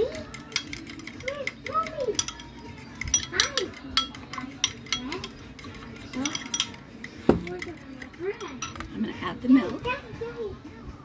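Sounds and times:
whisk clinking against bowl: 0.0s - 9.0s.

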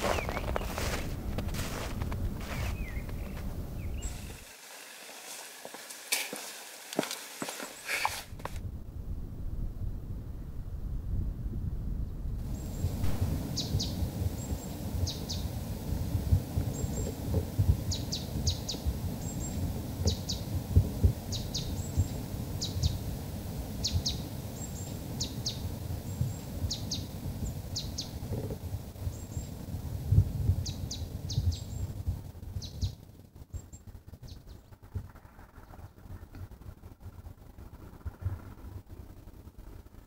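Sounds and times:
small bird calling: 0.0s - 1.0s, 2.4s - 8.4s, 12.6s - 15.6s
low rumbling noise: 0.0s - 40.0s.

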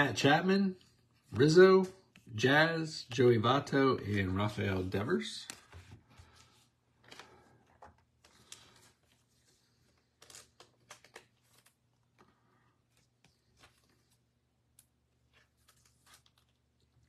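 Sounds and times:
cards rustling: 0.8s - 2.5s, 3.6s - 17.0s
soft clicks of cards: 7.0s - 9.2s.

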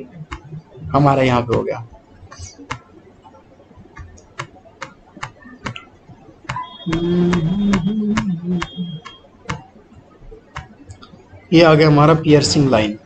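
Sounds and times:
computer clicks: 0.2s - 0.5s, 1.5s - 9.7s, 10.5s - 11.2s
thin high whine: 5.2s - 9.4s
low wavering droning tone: 6.6s - 9.2s.

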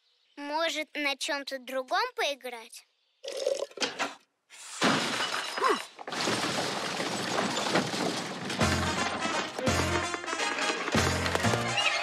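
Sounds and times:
dense clatter: 4.8s - 9.6s
shattering crash: 4.8s - 9.6s.

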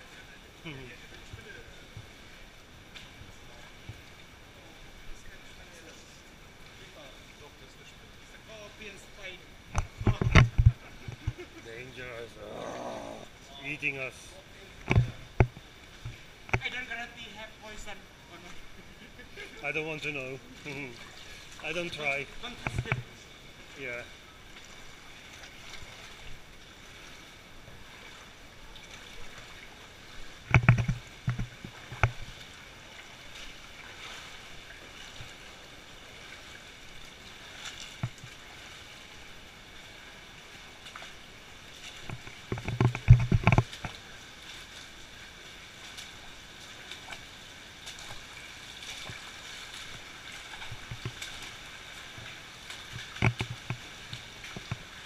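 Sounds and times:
hiss of moving water: 11.0s - 42.6s
feet splashing through water: 20.5s - 23.8s, 24.4s - 55.0s.

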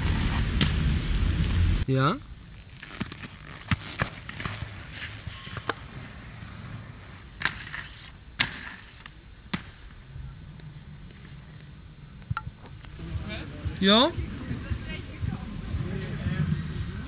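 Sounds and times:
skate wheels rolling: 0.0s - 1.8s, 2.4s - 17.0s
skate scraping hiss: 2.7s - 9.7s.

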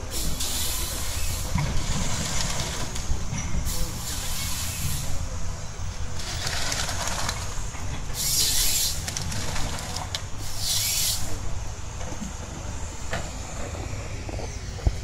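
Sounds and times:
harvester head hissing: 0.0s - 2.9s, 3.6s - 5.4s, 6.2s - 9.2s, 10.4s - 11.5s
diesel engine rumble: 0.0s - 15.0s.

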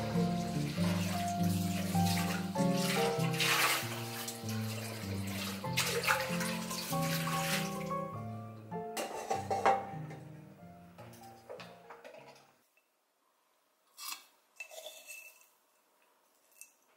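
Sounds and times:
tap water splashing in metal bowl: 0.0s - 7.9s
soft background music: 0.0s - 12.3s
bowl knocking: 9.0s - 10.3s.

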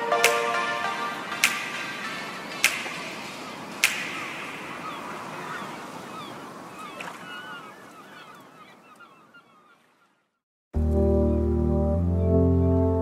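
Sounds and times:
noisy wash with chirping glides: 0.0s - 9.4s.

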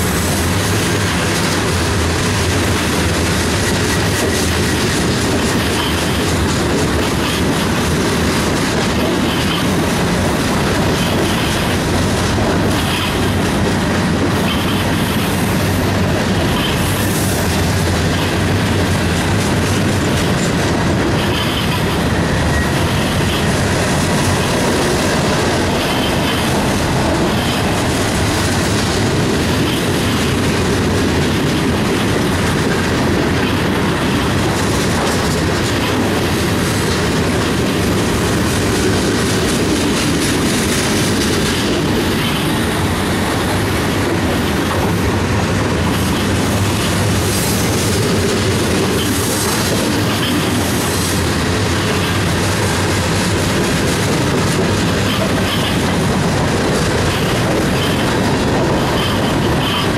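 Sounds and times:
steel wheels rumbling on rail: 0.0s - 59.9s
wheels clacking on rail joints: 0.0s - 59.9s.

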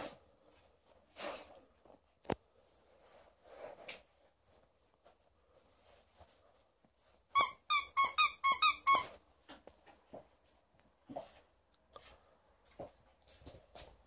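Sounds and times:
dog toy squeaker squeaking: 7.4s - 9.1s.

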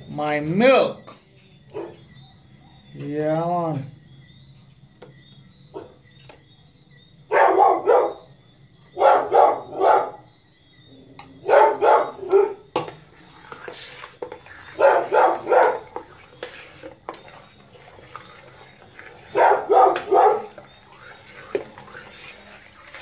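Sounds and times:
dog barking: 1.7s - 2.0s, 5.7s - 6.0s, 7.3s - 8.3s, 9.0s - 10.3s, 11.4s - 12.7s, 14.8s - 15.8s, 19.3s - 20.6s.

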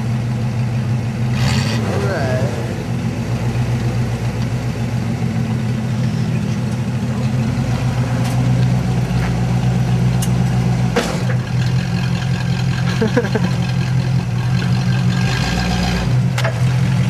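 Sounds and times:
engine idling through exhaust: 0.0s - 17.0s.

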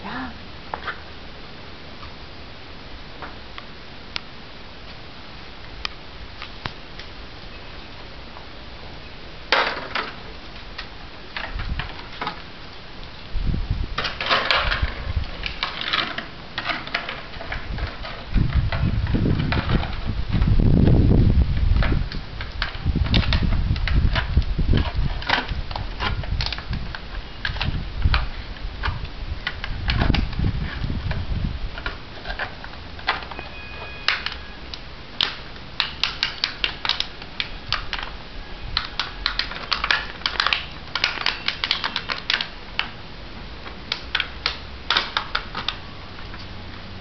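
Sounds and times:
puppy gnawing hard plastic: 38.8s - 42.9s.

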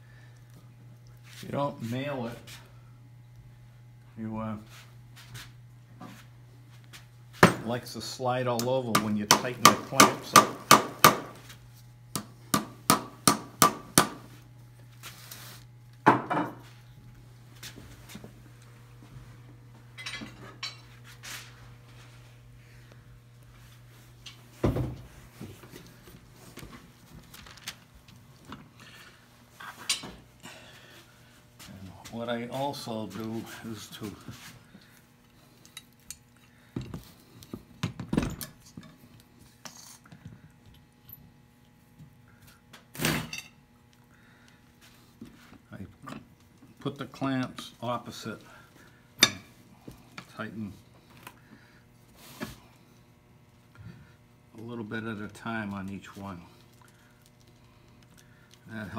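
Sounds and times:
hammer hitting nail into wood: 8.9s - 11.4s, 12.2s - 14.2s.

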